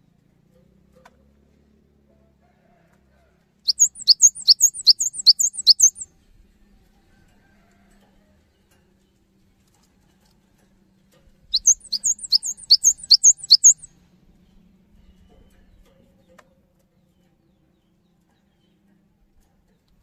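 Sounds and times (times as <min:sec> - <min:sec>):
bird singing two-note phrases: 0:03.7 - 0:06.0, 0:11.6 - 0:13.9.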